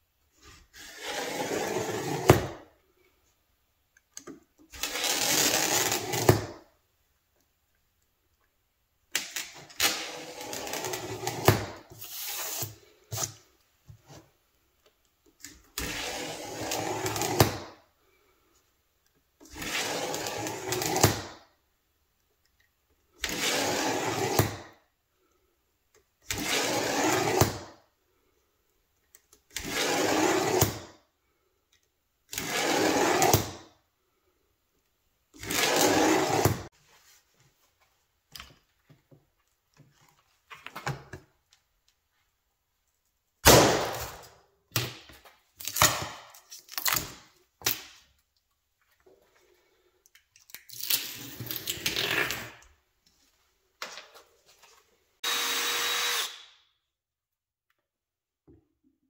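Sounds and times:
power tool motor bursts: 55.2s - 56.5s.

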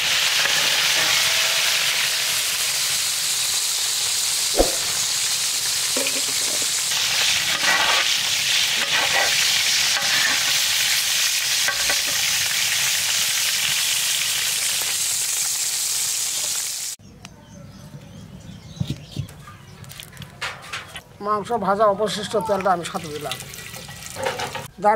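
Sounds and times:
chicken sizzling in oil: 0.0s - 17.0s, 22.9s - 24.7s.

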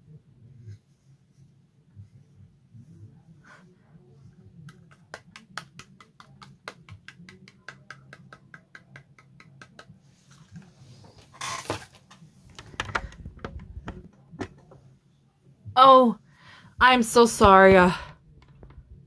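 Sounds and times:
phone handling rustling and knocks: 12.5s - 14.8s.

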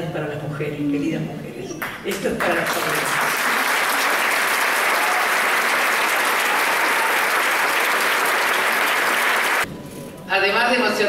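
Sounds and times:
audience applauding: 2.4s - 9.7s.

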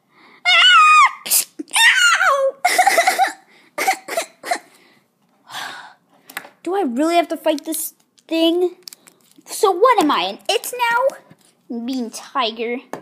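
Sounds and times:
person squealing high-pitched: 0.5s - 3.4s.

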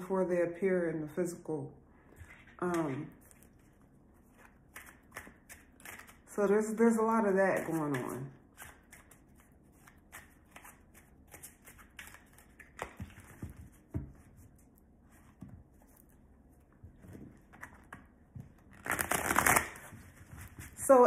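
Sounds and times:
cards being shuffled: 2.2s - 6.3s, 7.6s - 14.6s, 17.1s - 20.9s.

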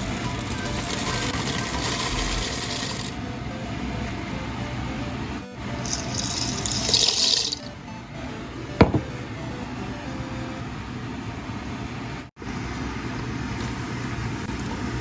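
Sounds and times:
broth boiling in a pot: 0.0s - 3.2s, 12.4s - 15.0s
background music: 0.0s - 10.7s.

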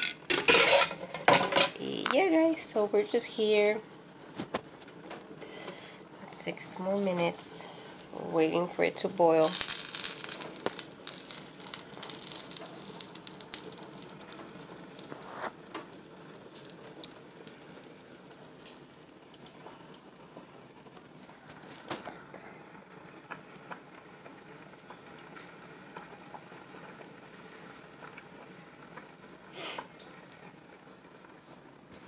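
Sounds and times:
faint hiss: 1.7s - 32.0s
water bubbles crackling and ticking: 7.4s - 27.2s.

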